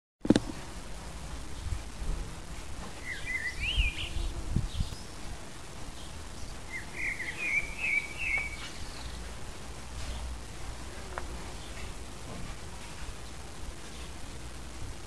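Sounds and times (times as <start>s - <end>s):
blackbird singing: 3.0s - 5.2s, 6.0s - 9.2s.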